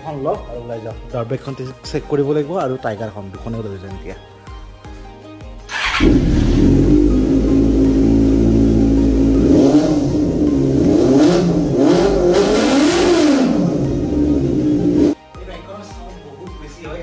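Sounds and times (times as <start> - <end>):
motorcycle engine idling and revving: 5.7 - 15.2.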